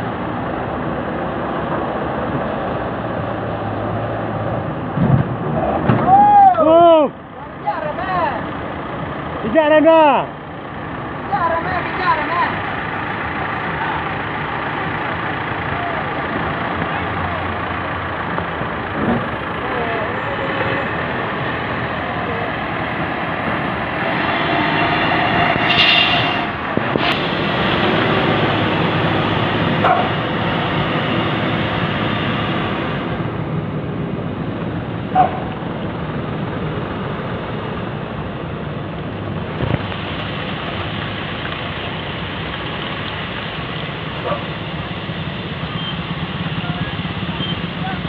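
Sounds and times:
heavy truck engines running: 0:00.0 - 0:48.0
short sharp sounds: 0:23.9 - 0:27.9.

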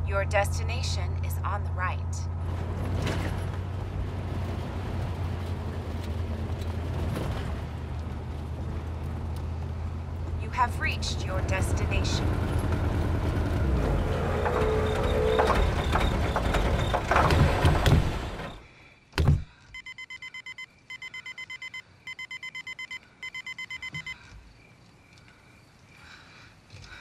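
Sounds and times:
car engine running rough: 0:02.4 - 0:18.6
thump: 0:19.2 - 0:19.5
car warning chime beeping: 0:19.8 - 0:24.2.

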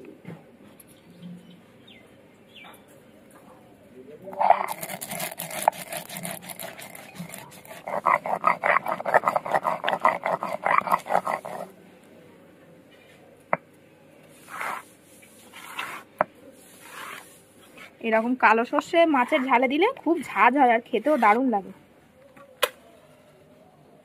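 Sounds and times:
soft scrape of paste: 0:04.3 - 0:11.7, 0:14.2 - 0:18.4, 0:21.0 - 0:21.5
stone roller grinding seeds: 0:04.3 - 0:11.7, 0:15.5 - 0:16.1.

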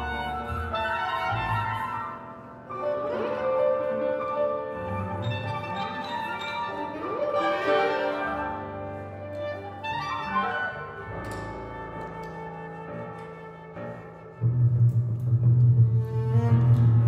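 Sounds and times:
chamber ensemble playing: 0:00.0 - 0:14.4.

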